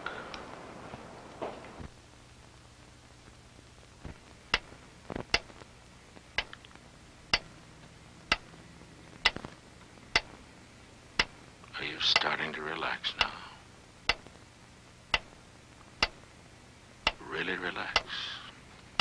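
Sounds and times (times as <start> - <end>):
metronome ticking: 4.5 - 4.7, 5.3 - 5.5, 6.4 - 6.6, 7.3 - 7.5, 9.2 - 9.4, 10.1 - 10.3, 11.2 - 11.4, 14.1 - 14.3, 15.1 - 15.4, 16.0 - 16.2, 17.0 - 17.2.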